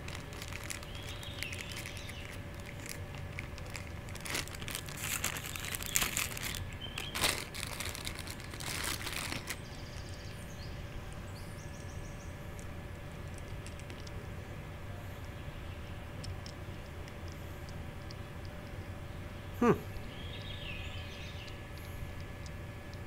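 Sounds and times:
plastic packaging crinkling: 0:00.0 - 0:09.9.

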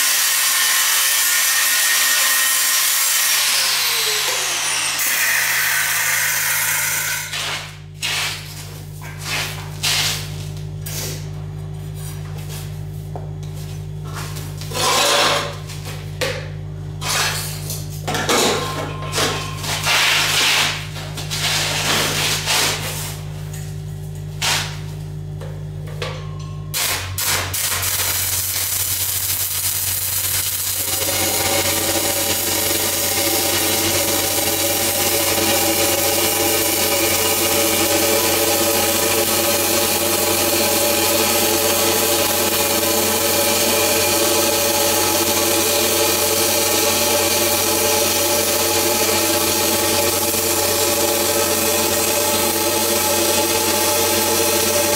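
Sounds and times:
knocks and scrapes: 0:07.3 - 0:16.1, 0:17.0 - 0:23.3
steady low hum: 0:07.3 - 0:36.0
welding arc crackling: 0:26.7 - 0:54.9.

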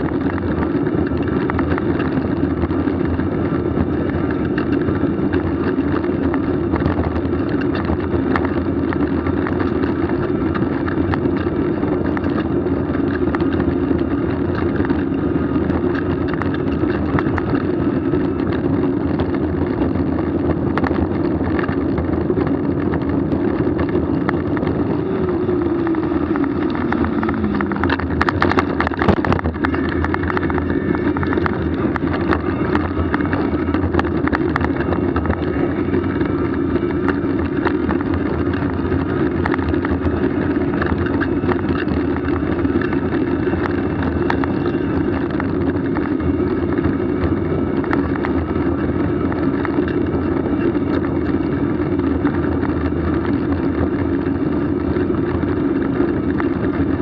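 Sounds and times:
continuous droning tone: 0:00.0 - 0:57.0
vehicle running noise: 0:00.0 - 0:57.0
rattling clicks: 0:20.7 - 0:47.1.

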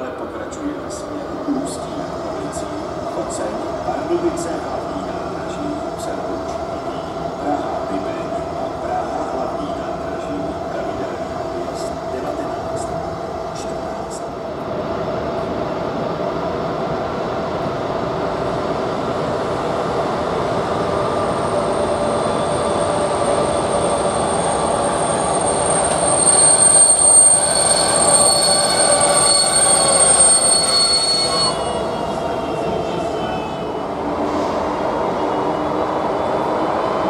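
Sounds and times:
wheel and brake squeal: 0:23.4 - 0:32.0.

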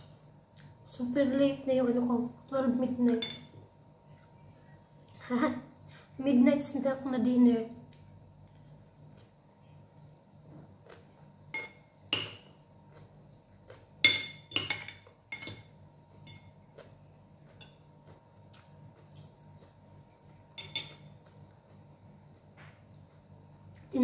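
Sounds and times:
cutlery clinking on a plate: 0:14.0 - 0:16.6, 0:20.6 - 0:21.1.

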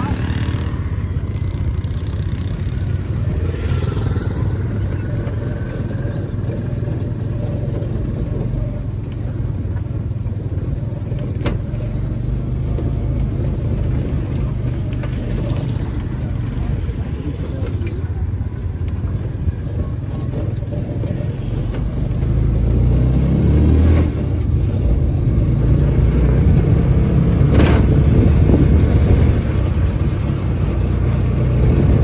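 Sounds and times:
motorcycle engine running: 0:00.0 - 0:23.3
wind buffeting microphone: 0:26.4 - 0:32.0.

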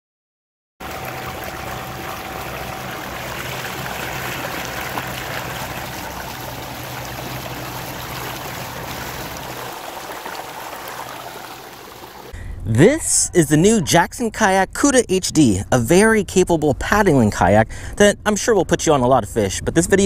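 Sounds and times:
faint steady motor hum: 0:00.8 - 0:12.3
water rushing along kayak hull: 0:00.8 - 0:12.4.

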